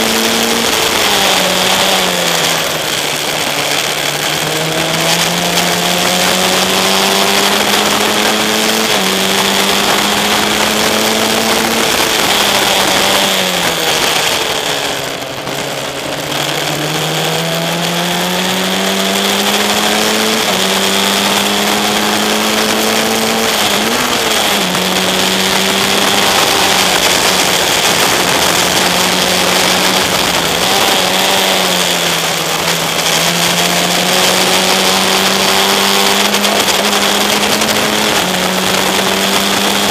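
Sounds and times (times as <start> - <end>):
racing car engine: 0.0 - 39.9
rushing air: 20.0 - 39.9.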